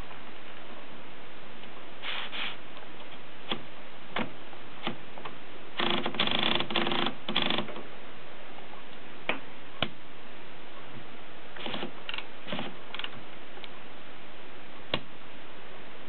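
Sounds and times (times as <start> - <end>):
typewriter platen ratchet clicking: 5.8 - 7.8.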